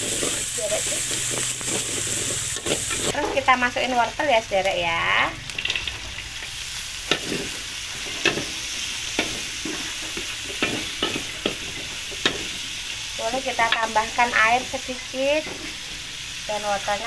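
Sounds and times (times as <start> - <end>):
metal spatula scraping a pan: 0.0 - 3.5, 7.1 - 12.6
carrots sizzling in a wok: 0.0 - 17.0.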